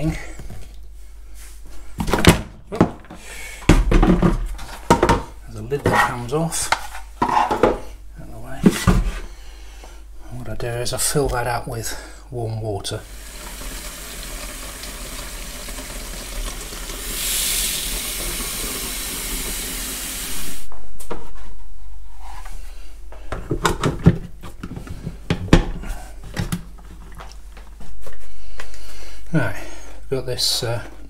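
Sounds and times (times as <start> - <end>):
tap water running into plastic tank: 13.0 - 20.6.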